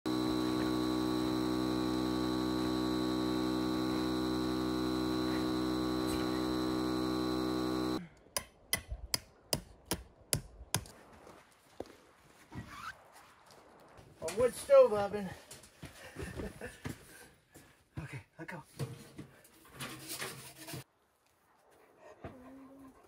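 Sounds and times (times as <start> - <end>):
electric air pump humming: 0.0 - 8.0.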